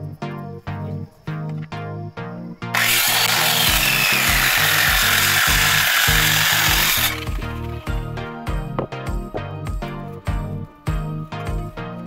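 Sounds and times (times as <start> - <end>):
background music with beat: 0.0 - 12.0
circular saw cutting wood: 2.8 - 7.9.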